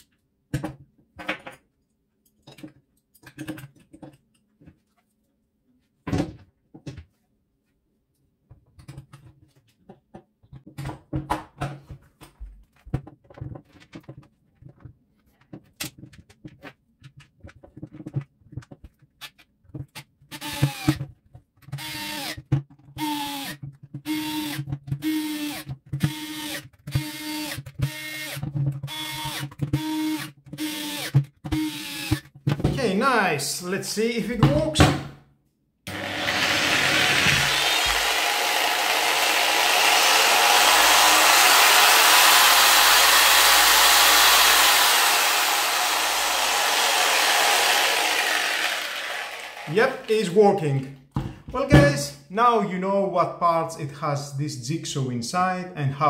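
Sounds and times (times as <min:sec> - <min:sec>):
clicks and knocks of parts: 0:00.0 - 0:04.8
electric screwdriver bursts: 0:35.9 - 0:50.1.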